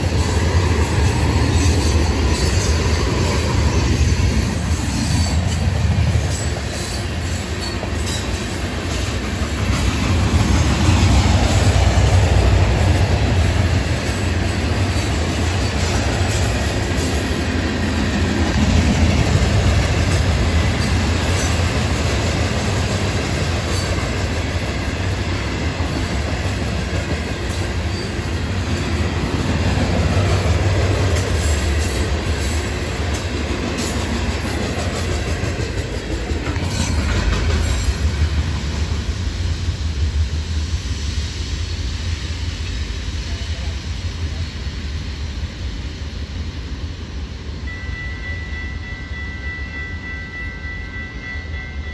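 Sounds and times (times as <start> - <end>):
wheels clicking over rail joints: 0.0 - 38.9
freight cars rumbling on rails: 0.0 - 51.9.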